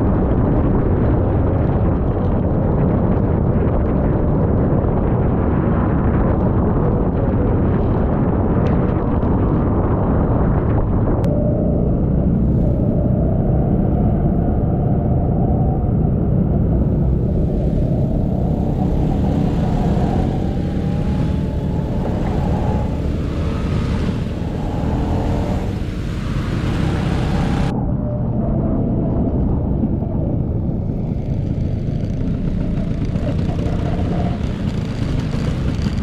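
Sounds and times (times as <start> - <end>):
scooter engine running: 16.6 - 27.7.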